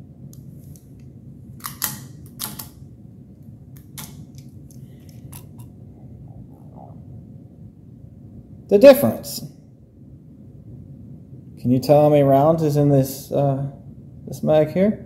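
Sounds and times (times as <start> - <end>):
pistol magazines clicking: 1.6 - 2.8, 3.8 - 4.5.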